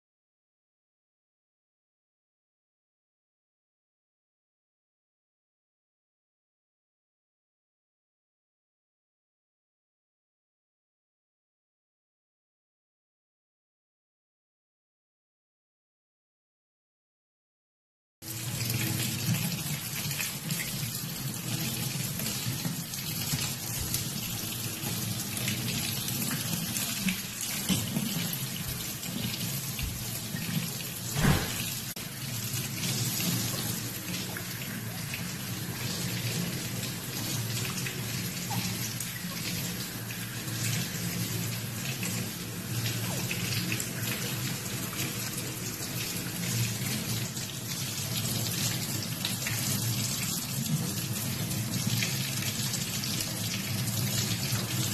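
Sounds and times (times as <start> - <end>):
faucet water running: 18.2 - 54.9
knock: 31.2 - 31.7.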